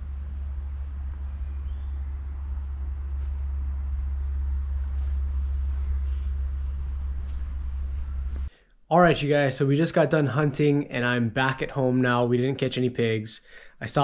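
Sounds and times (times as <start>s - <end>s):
low rumble: 0.0s - 8.5s
insects trilling: 0.0s - 11.2s
faint ticks: 5.8s - 8.8s.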